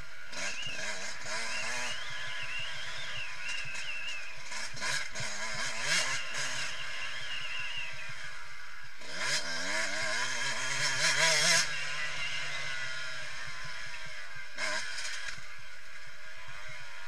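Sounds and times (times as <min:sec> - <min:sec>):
two-stroke motorcycle engine revving: 0:00.0 - 0:17.0.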